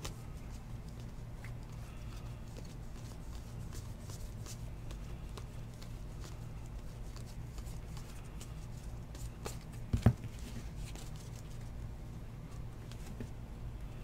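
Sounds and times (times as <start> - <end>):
steady low hum: 0.0 - 14.0
card stack thumping on table: 9.9 - 10.3.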